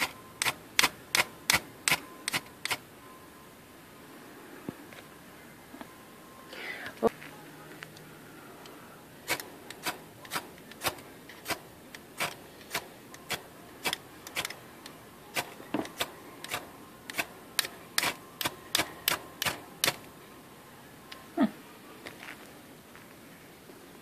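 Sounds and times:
steel striker scraping fire rod: 0.0 - 2.8, 9.3 - 14.6, 15.3 - 20.1.

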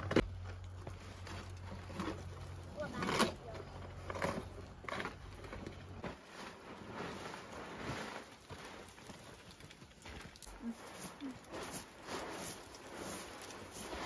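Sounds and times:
footsteps: 5.0 - 14.0
cloth rustling and dragging: 6.0 - 8.9, 10.6 - 14.0.

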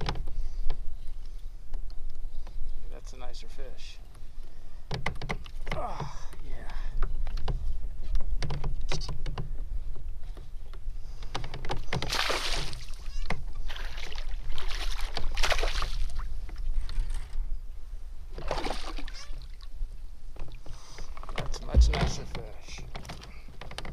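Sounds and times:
steady low rumble: 21.6 - 22.8.

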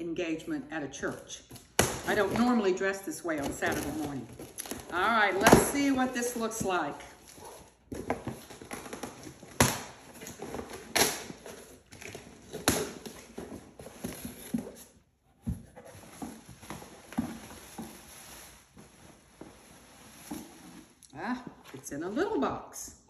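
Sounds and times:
packaging rustling and scraping: 3.3 - 21.0.

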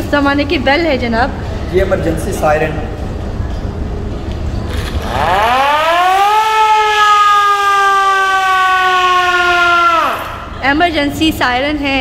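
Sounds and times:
emergency siren winding up: 5.0 - 10.4.

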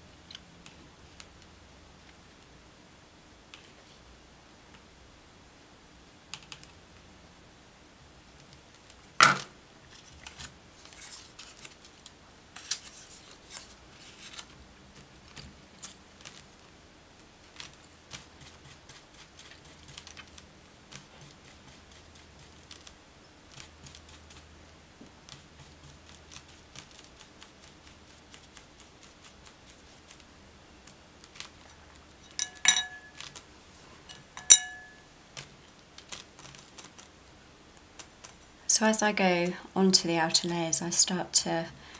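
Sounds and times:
brush rustling on paper: 9.9 - 12.0, 12.6 - 32.4
paintbrush clinking on ceramic plate: 32.2 - 33.2, 34.1 - 35.0.

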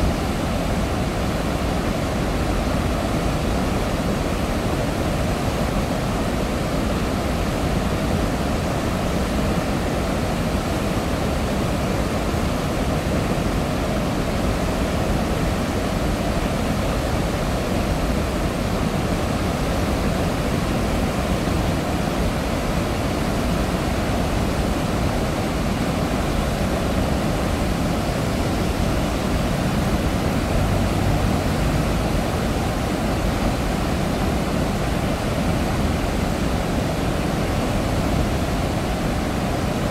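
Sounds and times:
water roaring through spillway: 0.0 - 39.9.

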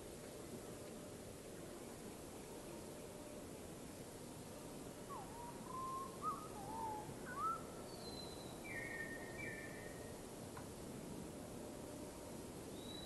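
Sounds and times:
steady hiss: 0.0 - 13.0
bird whistling: 5.1 - 9.6.

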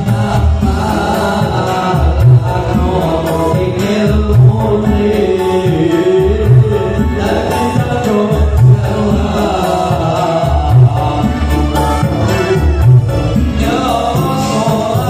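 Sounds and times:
amplified accompaniment with low beat: 0.0 - 15.0
man singing into a microphone: 0.0 - 15.0.

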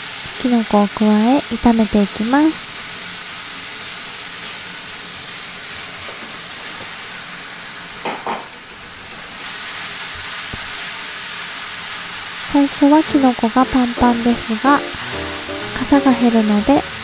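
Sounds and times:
food sizzling in frying pan: 0.0 - 17.0.

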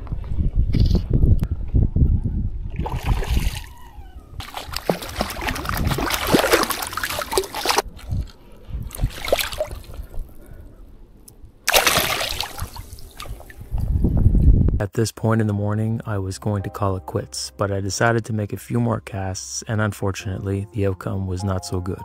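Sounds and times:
water splashing: 2.8 - 3.7, 4.4 - 10.4, 11.6 - 13.9.

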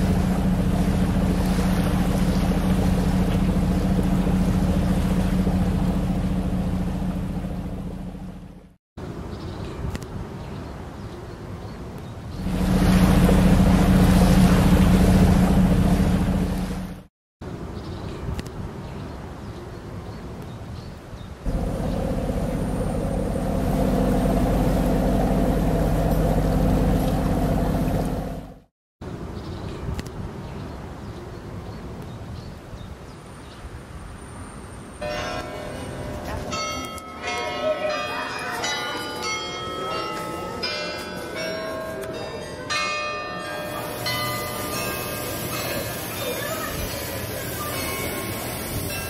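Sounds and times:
boat engine running: 0.0 - 8.8, 12.4 - 17.1, 21.5 - 28.7
tower bells ringing: 35.0 - 49.0.

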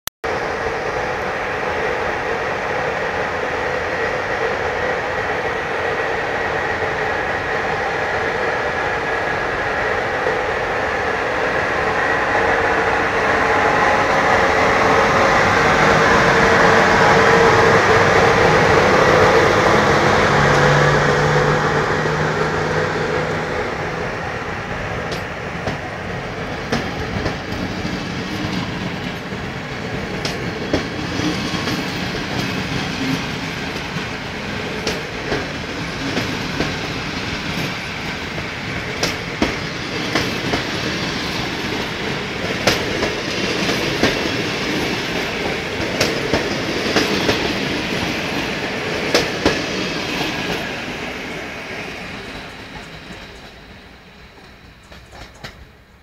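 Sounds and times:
electric locomotive humming and whining: 0.2 - 56.0
train wheels clicking over rail joints: 24.7 - 55.9.

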